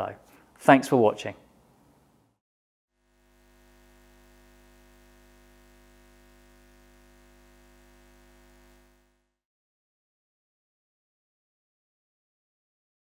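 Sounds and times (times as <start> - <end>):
faint low hum: 3.1 - 9.3.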